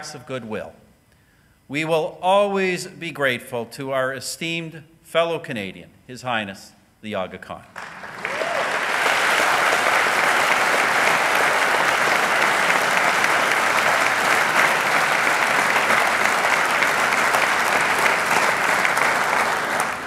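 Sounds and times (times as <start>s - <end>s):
audience applauding: 7.8s - 20.0s.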